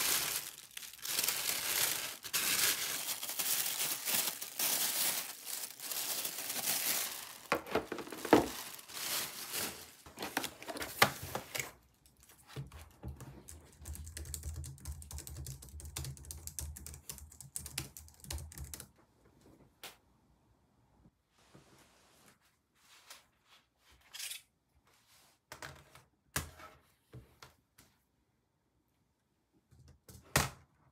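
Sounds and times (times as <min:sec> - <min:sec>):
packaging crinkling: 0:00.0 - 0:11.7
typing on a keyboard: 0:12.9 - 0:18.9.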